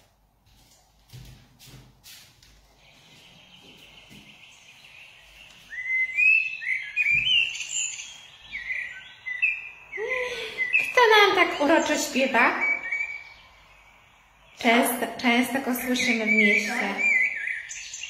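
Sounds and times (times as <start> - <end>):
blackbird song: 2.5 - 18.0.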